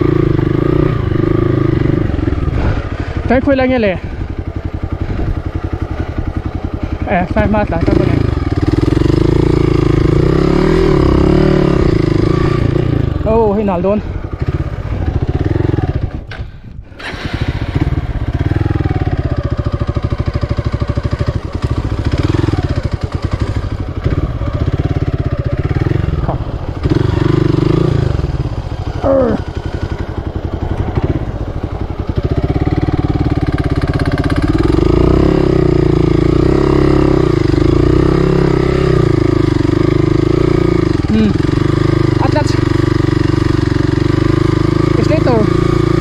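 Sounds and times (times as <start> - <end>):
motorcycle engine revving: 0.0 - 46.0.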